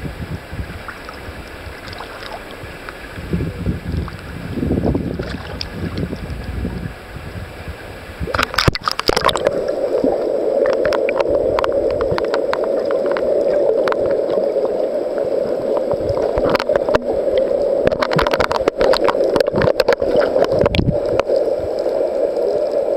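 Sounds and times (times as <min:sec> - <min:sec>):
muffled underwater sound: 0:00.0 - 0:22.9
water sloshing against camera: 0:00.8 - 0:22.9
splash: 0:01.8 - 0:02.7, 0:05.2 - 0:06.1, 0:08.3 - 0:14.5, 0:17.8 - 0:21.4
sharp crackling clicks: 0:08.3 - 0:14.5, 0:15.7 - 0:22.8.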